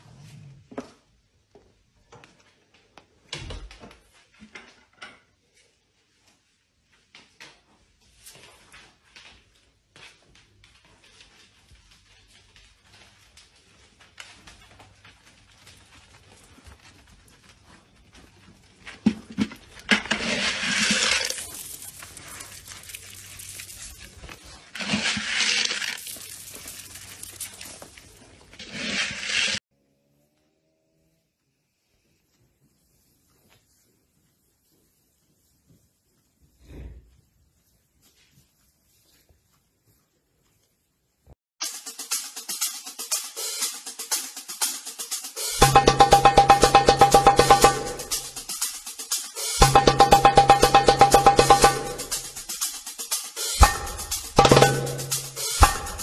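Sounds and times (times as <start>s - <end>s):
hooves clicking on hard floor: 6.9s - 29.5s
corn kernels hitting concrete: 19.1s - 29.6s.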